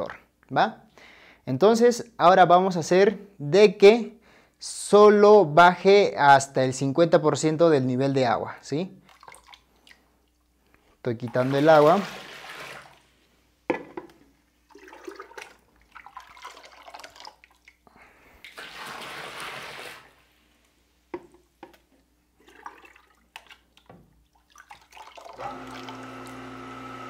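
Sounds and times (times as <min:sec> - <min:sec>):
water splashing and dribbling: 0:09.0 - 0:10.4, 0:11.2 - 0:13.1, 0:14.6 - 0:20.2, 0:22.4 - 0:26.0
plastic jug knocking: 0:13.7 - 0:14.1
electric water pump humming: 0:25.3 - 0:27.0.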